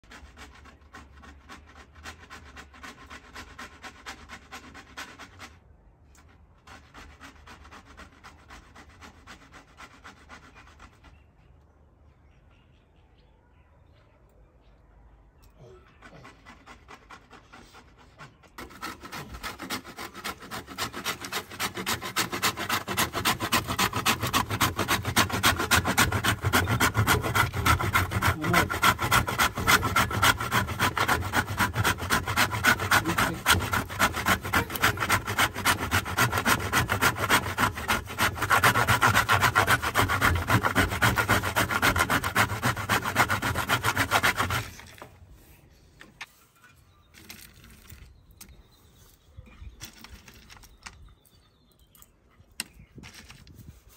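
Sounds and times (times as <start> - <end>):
coconut grated on metal grater: 18.6 - 44.9.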